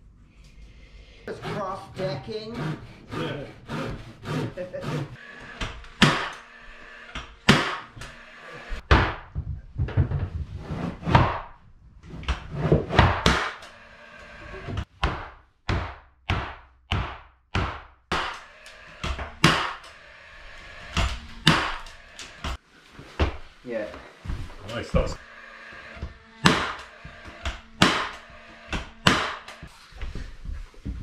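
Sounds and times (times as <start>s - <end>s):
hammer knocking wooden floorboards: 8.8s - 11.5s, 26.0s - 31.0s.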